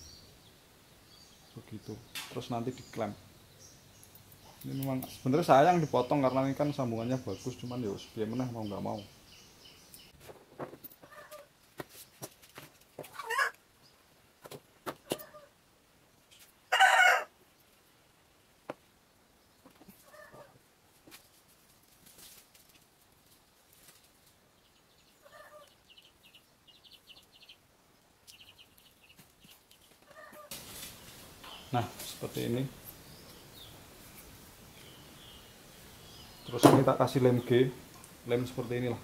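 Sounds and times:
chickens clucking: 10.3s - 11.5s, 13.0s - 13.6s, 14.4s - 15.5s, 19.6s - 20.6s, 25.2s - 26.1s, 28.3s - 32.7s.

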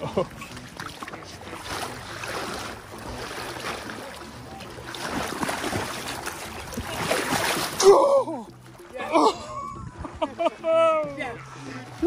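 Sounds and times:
river current washing around net: 0.0s - 12.0s
fish thrashing and splashing: 0.4s - 8.8s.

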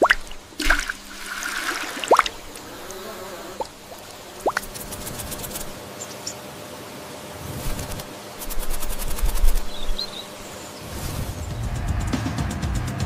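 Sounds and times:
bird wings fluttering: 0.0s - 5.8s, 7.4s - 11.6s
high bird chirps: 9.0s - 10.9s.

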